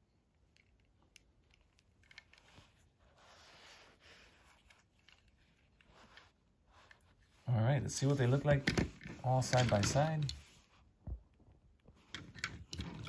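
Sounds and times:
light rubbing of toy: 0:01.6 - 0:10.9.

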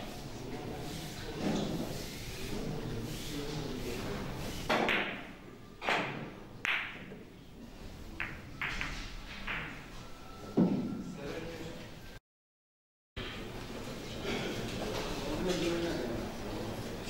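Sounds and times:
cue striking ball: 0:04.7 - 0:07.2, 0:08.2 - 0:09.9.

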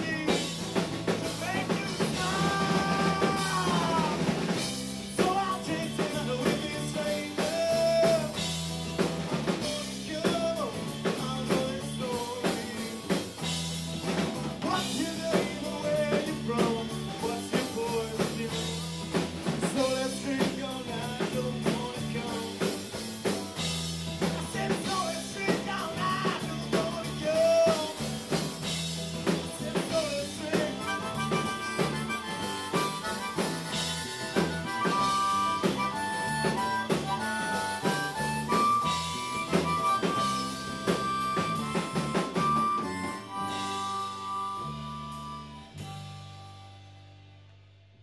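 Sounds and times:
harmonica solo: 0:00.0 - 0:05.0, 0:22.8 - 0:47.1
drum kit beat: 0:00.0 - 0:46.4
live rock band: 0:00.0 - 0:47.2.

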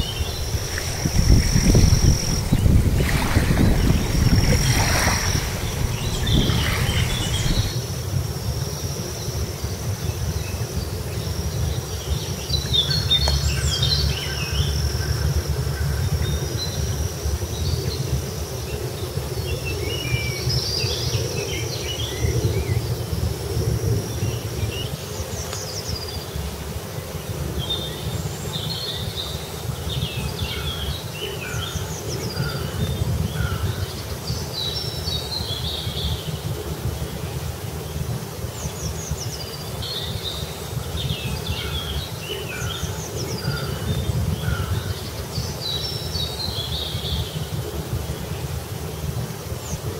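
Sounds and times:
small birds chirping: 0:00.0 - 0:07.8.

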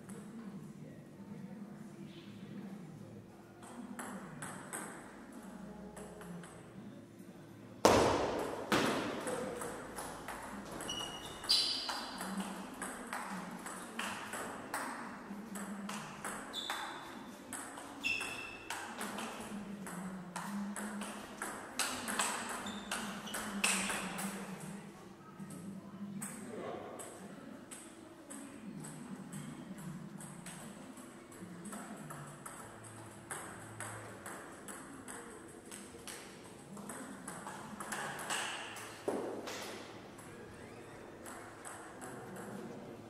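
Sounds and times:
short high squeaks: 0:10.8 - 0:12.0.

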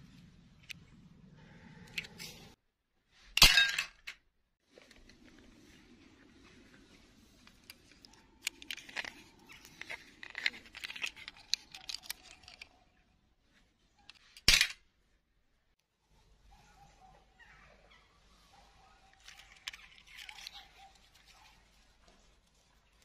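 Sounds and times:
twigs crackling and snapping: 0:07.3 - 0:12.8, 0:19.1 - 0:21.6.

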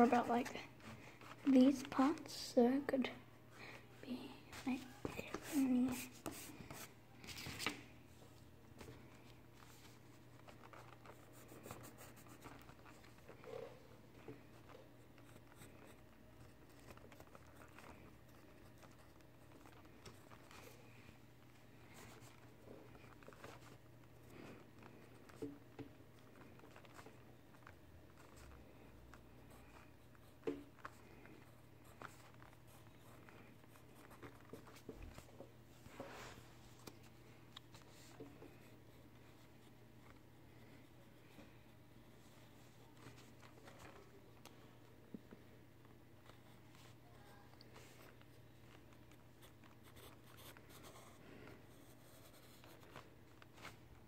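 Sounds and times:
pencil scratching on paper: 0:10.8 - 0:13.8, 0:49.8 - 0:52.9.

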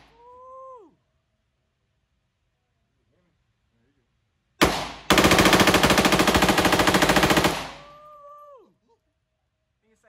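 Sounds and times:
submachine gun firing: 0:04.6 - 0:08.0.

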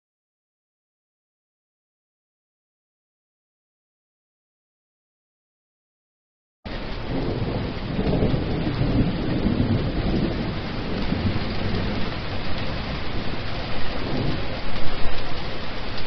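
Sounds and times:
heavy rain: 0:06.7 - 0:16.0
thunder rumbling: 0:06.7 - 0:16.0.

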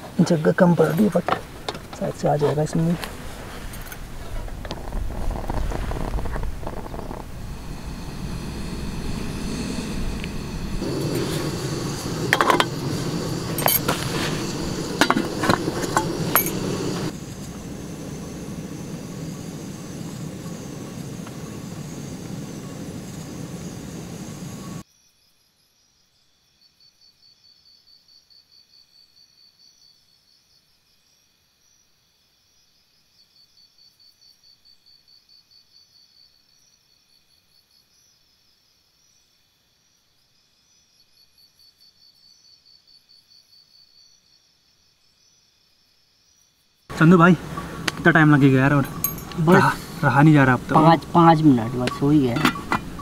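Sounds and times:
insect chirping: 0:00.0 - 0:53.0
gas burner running: 0:04.5 - 0:24.8, 0:46.9 - 0:53.0
metal pots clinking: 0:12.1 - 0:12.8, 0:13.4 - 0:17.1, 0:48.7 - 0:53.0.

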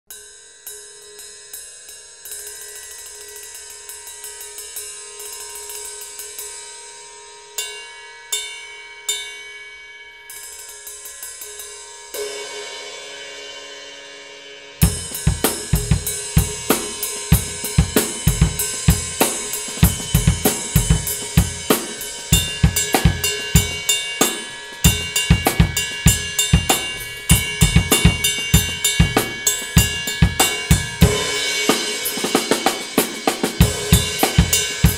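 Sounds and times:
ride cymbal played with drumstick: 0:00.0 - 0:34.9
bass drum: 0:14.8 - 0:24.0, 0:24.9 - 0:34.9
snare drum: 0:26.6 - 0:34.9.

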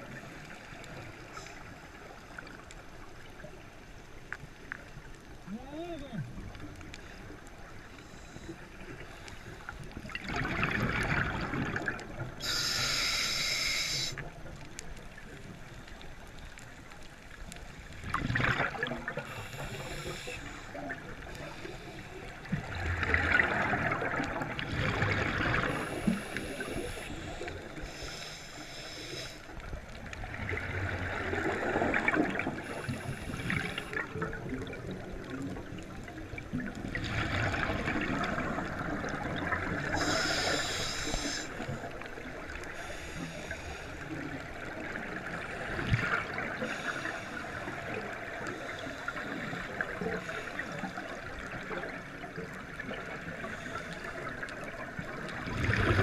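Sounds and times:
hissing regulator inhalations: 0:12.4 - 0:14.2, 0:19.3 - 0:20.8, 0:25.6 - 0:29.5, 0:32.6 - 0:34.1, 0:39.9 - 0:41.8, 0:42.7 - 0:44.0.

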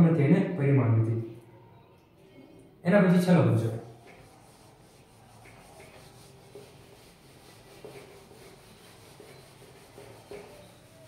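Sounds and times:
eraser rubbing on whiteboard: 0:03.9 - 0:11.0.

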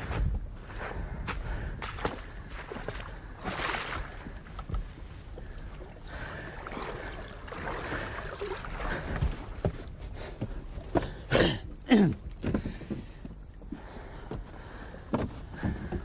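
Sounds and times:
boots bumping wooden hull: 0:08.8 - 0:11.3, 0:12.0 - 0:16.0.

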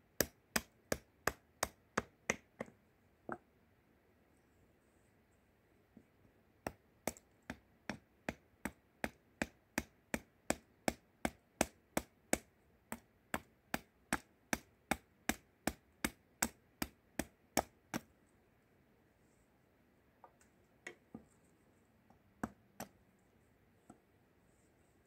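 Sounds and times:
hatchet chopping wood: 0:00.2 - 0:02.7, 0:06.6 - 0:18.1.

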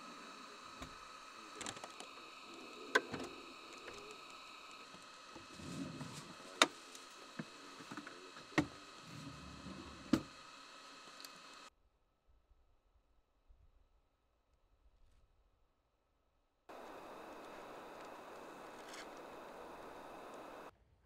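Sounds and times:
faint steady tones: 0:00.0 - 0:11.7, 0:16.7 - 0:20.7
drawer rumbling on slides: 0:05.4 - 0:06.3.

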